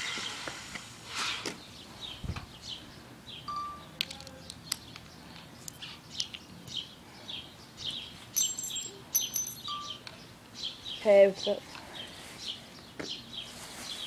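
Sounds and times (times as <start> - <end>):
small bird chirping: 1.6 - 14.0.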